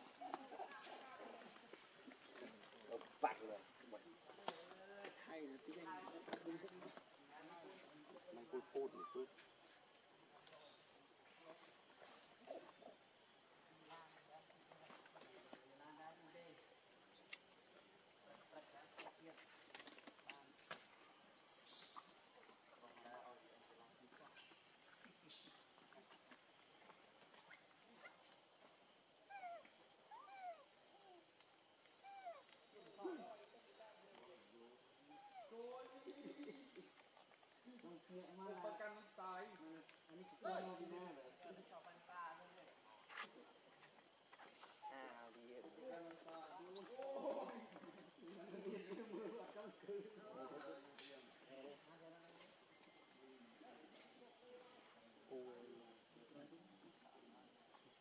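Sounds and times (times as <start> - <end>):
insect chorus drone: 0.0 - 58.0
faint squeaks and chirps: 21.0 - 22.2.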